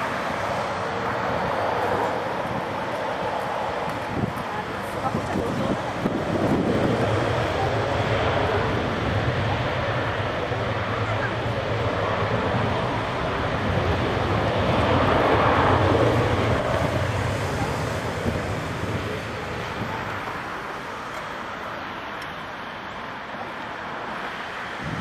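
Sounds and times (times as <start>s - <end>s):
jet airliner engines: 0.0s - 25.0s.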